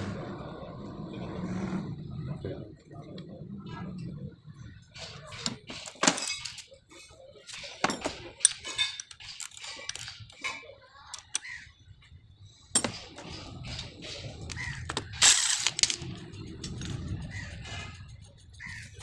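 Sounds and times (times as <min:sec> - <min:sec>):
metal tools clinking and clanking: 0:05.0 - 0:11.5, 0:12.7 - 0:18.0.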